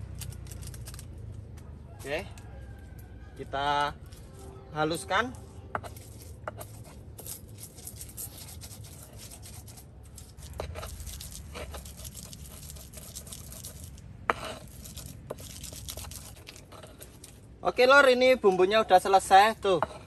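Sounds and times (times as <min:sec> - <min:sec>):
stone pestle grinding in mortar: 0:04.0 - 0:17.6, 0:19.2 - 0:20.0.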